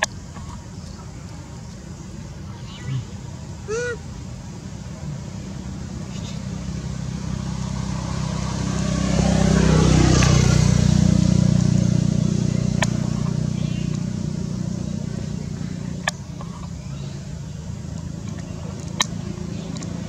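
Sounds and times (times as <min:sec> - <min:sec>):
vehicle engine passing by: 0:04.8 - 0:20.0.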